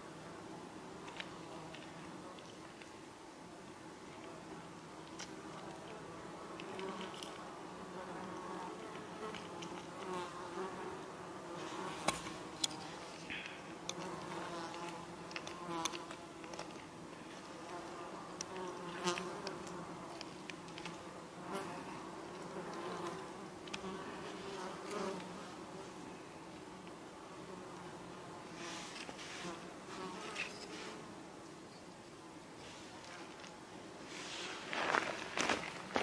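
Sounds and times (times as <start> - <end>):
flying insects buzzing: 4.1 - 31.4.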